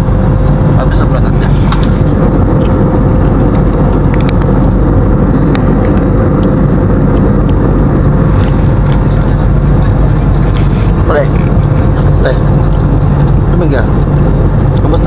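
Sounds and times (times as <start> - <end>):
jet engine and airflow rumble: 0.0 - 15.0
steady cabin hum: 0.0 - 15.0.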